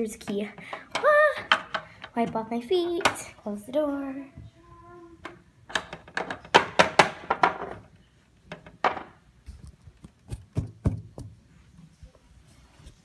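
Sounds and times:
toys clicking and knocking: 0.0s - 3.4s, 5.2s - 11.3s.

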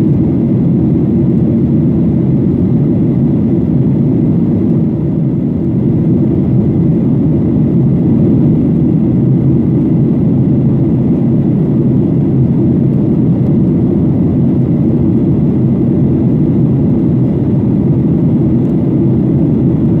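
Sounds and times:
airplane cabin low rumble: 0.0s - 20.0s.

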